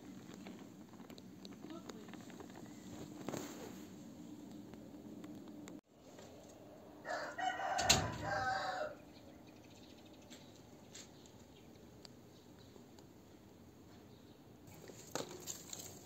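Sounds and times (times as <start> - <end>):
rooster crowing: 7.0 - 9.0.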